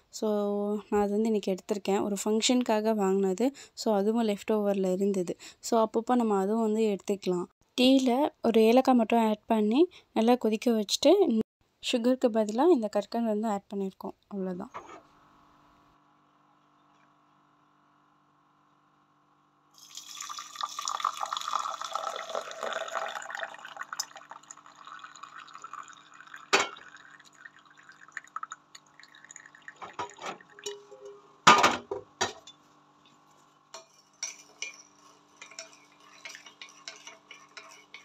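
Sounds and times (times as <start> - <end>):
tea pouring into a mug: 19.8 - 30.7
liquid trickling and dripping: 19.8 - 31.0
kitchenware clattering: 26.5 - 27.0, 29.8 - 32.7, 33.7 - 38.0.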